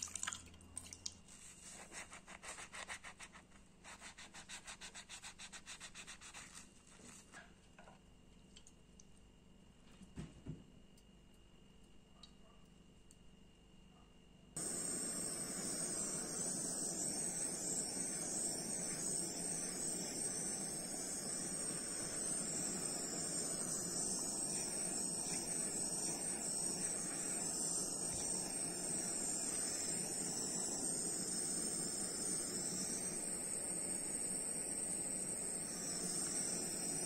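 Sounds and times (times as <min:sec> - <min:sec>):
butane torch hissing: 0:14.6 - 0:37.0.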